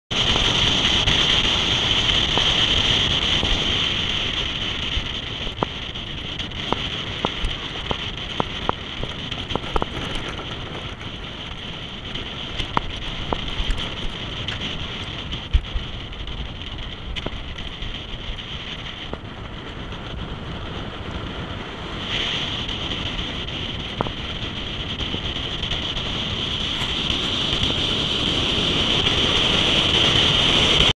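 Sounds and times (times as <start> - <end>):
vehicle driving on gravel: 0.1 - 30.9
wind rushing over microphone: 0.1 - 30.9
sharp clicks and knocks: 6.6 - 15.6.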